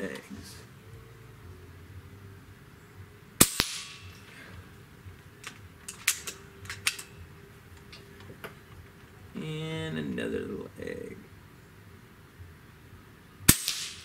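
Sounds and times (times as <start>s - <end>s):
air rifle shot crack: 3.4s - 4.2s, 13.5s - 14.0s
metallic clicks of rifle action: 5.4s - 7.2s.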